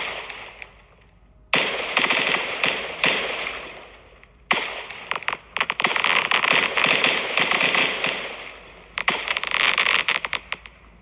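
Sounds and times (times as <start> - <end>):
fireworks bursting: 0.0 - 0.8, 1.6 - 11.0
fireworks crackle: 4.6 - 11.0.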